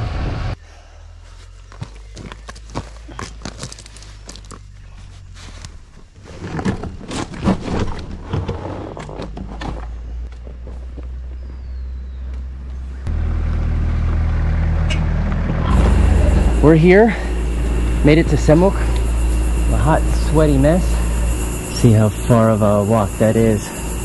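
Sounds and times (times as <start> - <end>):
vehicle engine running: 0.0 - 6.2, 9.4 - 24.0
riding gear clicks and scrapes: 1.8 - 11.6.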